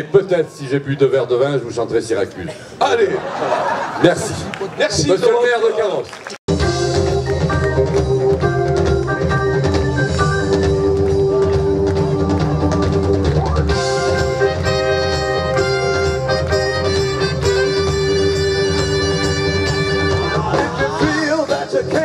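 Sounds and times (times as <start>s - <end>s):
live band playing instrumental: 6.5s - 22.0s.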